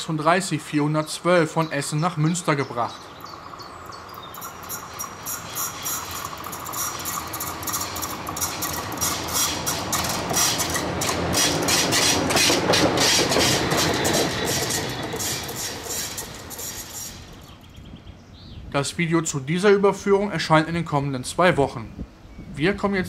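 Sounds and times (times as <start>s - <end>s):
diesel locomotive passing: 2.4s - 18.1s.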